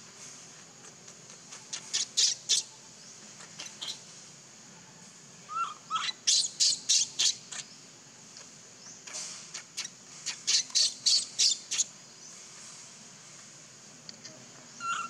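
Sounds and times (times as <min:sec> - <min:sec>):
infant monkey squealing: 0:01.7 - 0:02.7, 0:05.5 - 0:07.6, 0:14.8 - 0:15.0.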